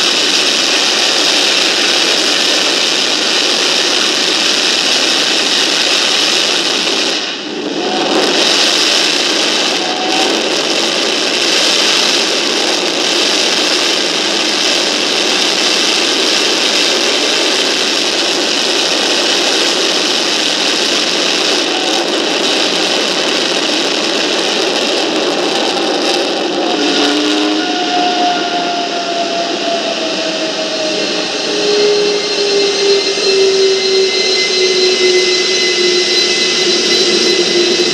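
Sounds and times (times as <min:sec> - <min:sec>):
jet engine roaring: 0:00.0 - 0:37.9
faint whistling tones gliding downward: 0:21.1 - 0:37.9.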